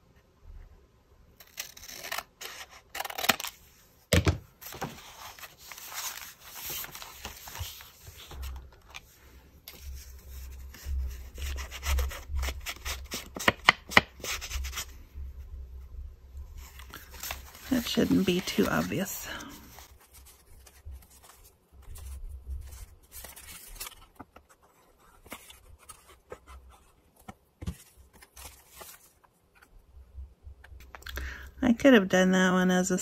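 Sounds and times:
card rustling on cutting mat: 0:04.2 - 0:14.9, 0:16.6 - 0:29.7.

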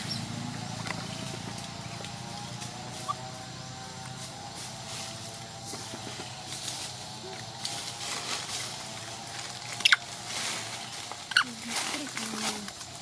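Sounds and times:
monkey squeaking: 0:00.0 - 0:00.3, 0:02.9 - 0:03.3, 0:09.8 - 0:10.1, 0:11.3 - 0:11.6
outdoor background hiss: 0:00.0 - 0:13.0.

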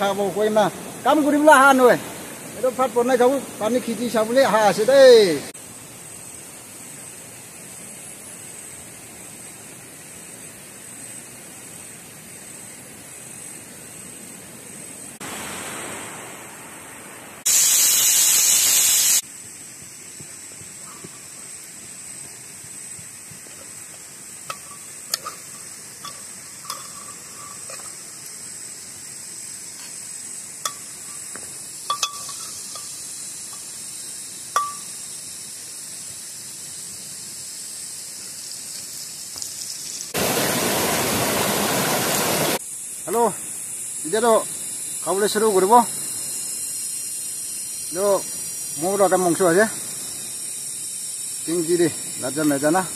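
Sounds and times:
steady high hiss: 0:00.0 - 0:52.9
spoon clinking on cooking pot: 0:31.9 - 0:32.9, 0:34.6 - 0:34.9.

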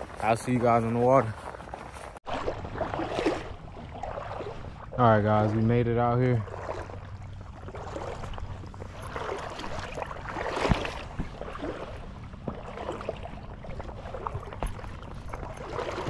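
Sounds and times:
wading through water: 0:00.0 - 0:16.0
loud water splash: 0:02.2 - 0:04.9, 0:06.4 - 0:14.3.

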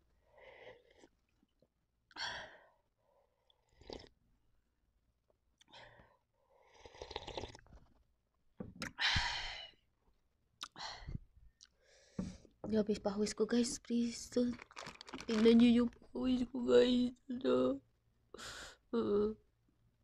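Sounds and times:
person slurping broth: 0:06.6 - 0:07.8.

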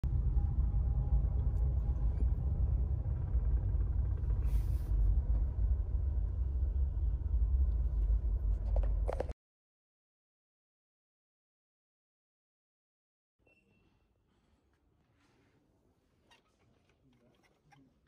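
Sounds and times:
car cabin rumble: 0:00.1 - 0:09.3.

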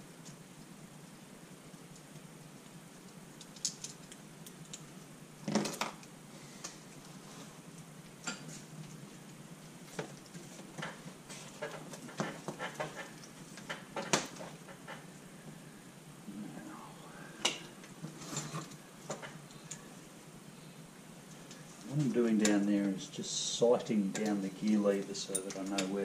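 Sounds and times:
metal tools clicking and clinking: 0:24.1 - 0:26.0.

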